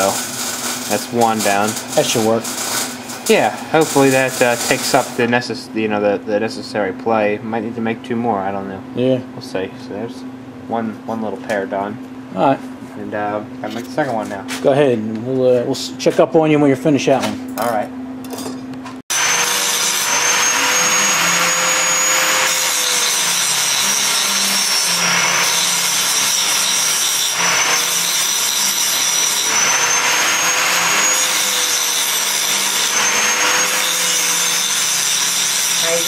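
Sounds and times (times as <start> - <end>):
electric motor whirring: 19.1 - 36.0.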